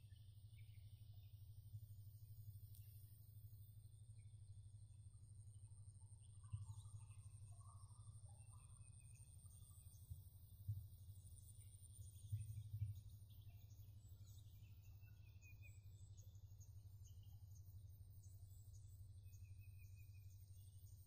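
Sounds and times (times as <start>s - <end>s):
low constant rumble: 0.0s - 21.0s
bird chirps: 6.4s - 21.0s.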